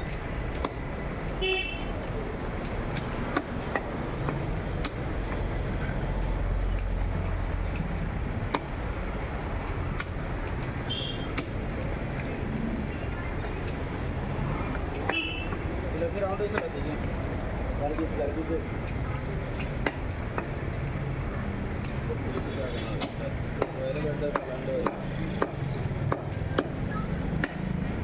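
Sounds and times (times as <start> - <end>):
steady traffic rumble: 0.0 - 28.0.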